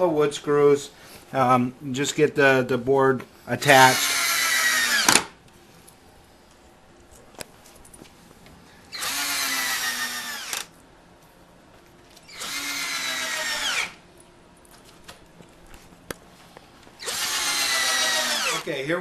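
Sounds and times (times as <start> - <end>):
cordless drill driving screws into wood: 3.8 - 5.4, 8.9 - 10.7, 12.3 - 14.0, 17.0 - 18.6.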